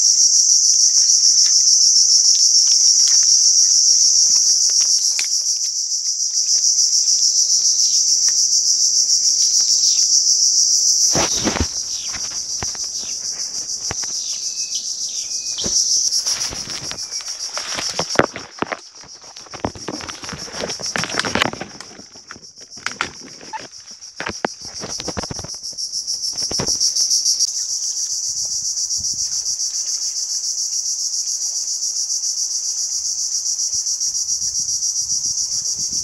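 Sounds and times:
insects buzzing: 0.0s - 36.0s
leaves and branches rustling: 0.6s - 10.0s, 10.8s - 30.2s
hands knocking among stems and mud: 15.6s - 22.1s.

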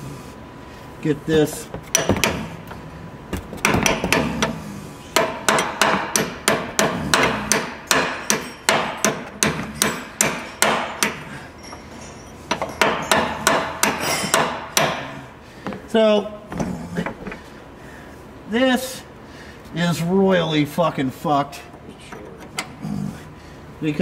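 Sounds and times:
hammer striking metal punch: 1.7s - 2.8s, 3.4s - 4.6s, 5.2s - 11.3s, 12.5s - 15.1s.

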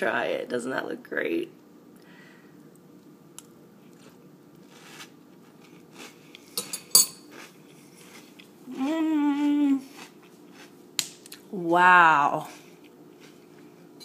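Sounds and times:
crunchy cereal being eaten: 3.8s - 6.6s, 7.2s - 8.6s, 9.8s - 11.5s
person humming mmm: 8.7s - 9.9s.

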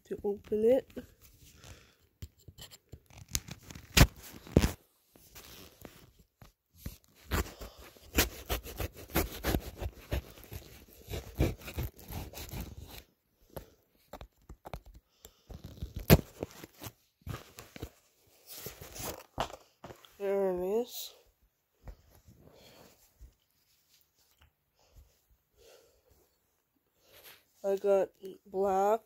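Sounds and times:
packaging tearing: 3.1s - 4.8s
knife cutting cardboard box: 7.2s - 13.1s.

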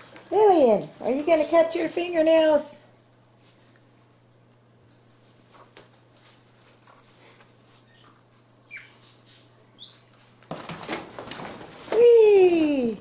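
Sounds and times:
monkey high-pitched squeaks: 5.5s - 6.0s, 6.8s - 9.0s, 9.8s - 10.0s.

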